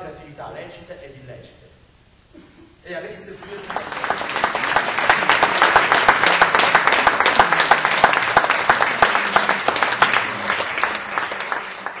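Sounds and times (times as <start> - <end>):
audience applauding: 3.1 - 12.0.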